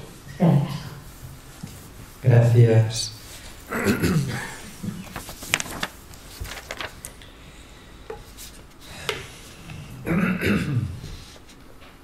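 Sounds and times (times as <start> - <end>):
paper rustling and clicking: 4.8 - 7.3.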